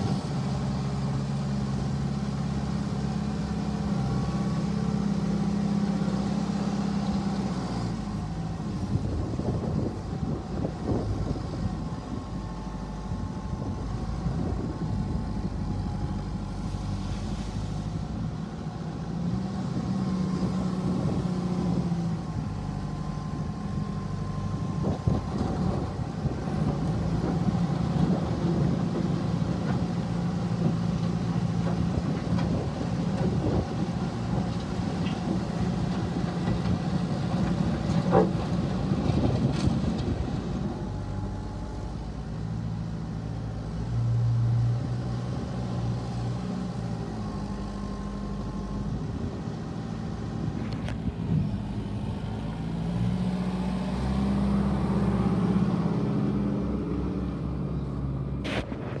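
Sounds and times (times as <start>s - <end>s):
backhoe diesel engine revving: 0.0s - 59.0s.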